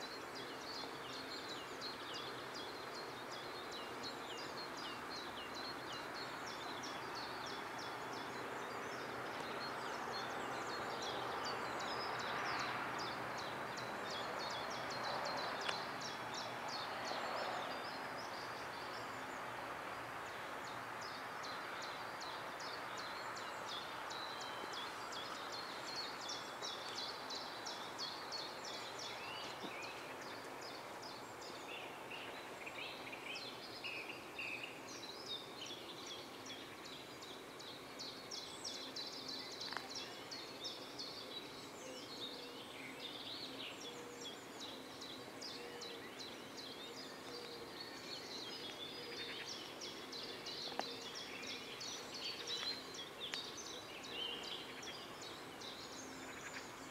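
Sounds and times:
faint steady background noise: 0.0 - 56.9
songbirds chirping and singing: 0.0 - 56.9.

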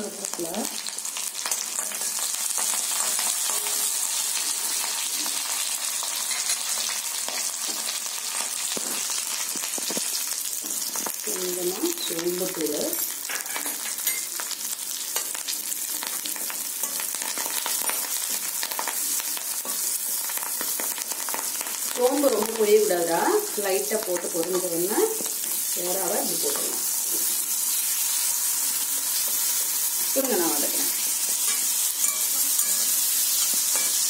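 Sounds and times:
garlic sizzling in oil: 0.0 - 34.0
spatula stirring: 31.2 - 34.0.

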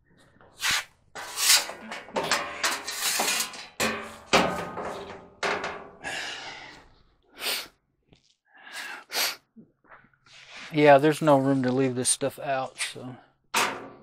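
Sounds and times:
loose parts knocking and scraping: 1.1 - 6.0.

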